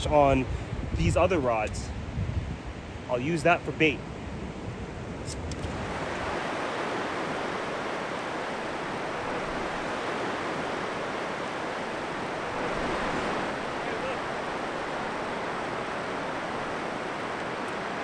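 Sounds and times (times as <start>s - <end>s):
surf breaking on beach: 5.6s - 18.0s.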